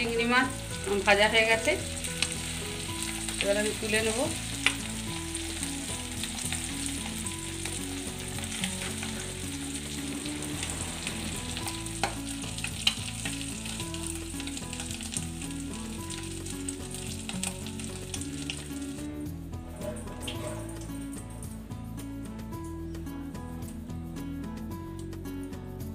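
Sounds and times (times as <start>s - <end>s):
prawns sizzling in hot oil: 0.0s - 21.5s
oil popping: 2.0s - 21.5s.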